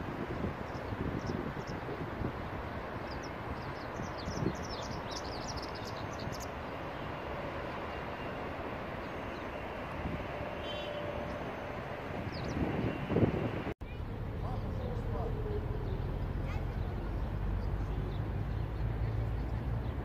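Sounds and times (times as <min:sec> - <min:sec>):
distant traffic: 0:00.0 - 0:20.0
wind: 0:00.0 - 0:20.0
high bird chirps: 0:03.1 - 0:06.6.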